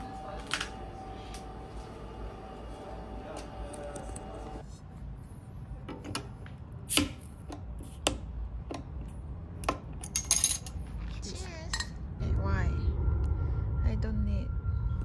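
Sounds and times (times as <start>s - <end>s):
utensils clinking and clattering: 10.0s - 10.8s.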